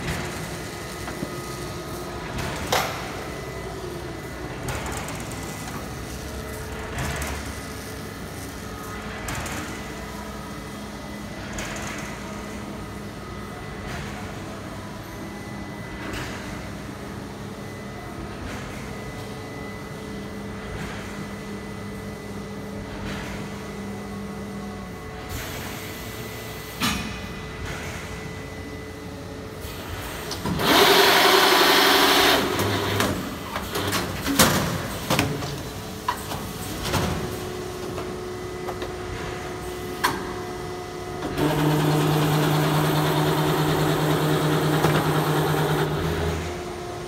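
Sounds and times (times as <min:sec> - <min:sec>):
machine humming: 0:41.2 - 0:47.0.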